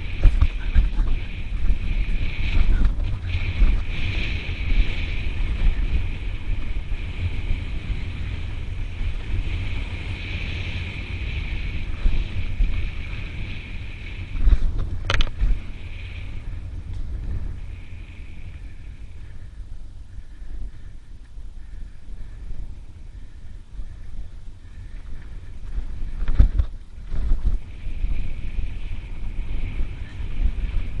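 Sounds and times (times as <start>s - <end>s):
bike rattling on dirt trail: 0.0s - 31.0s
wind buffeting microphone: 0.0s - 31.0s.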